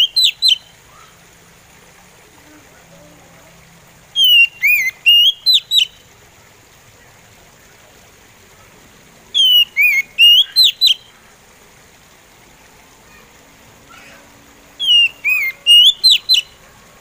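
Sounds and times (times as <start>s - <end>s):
bird singing whistled phrases: 0.0s - 1.1s, 4.1s - 6.0s, 9.3s - 11.2s, 14.8s - 16.6s.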